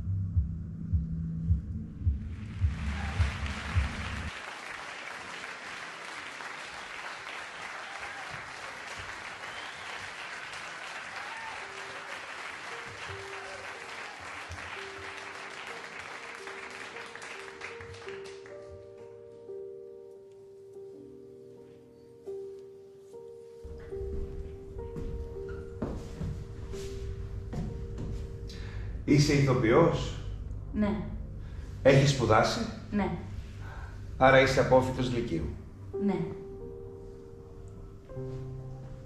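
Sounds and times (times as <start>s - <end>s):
audience applause: 2.3s - 18.6s.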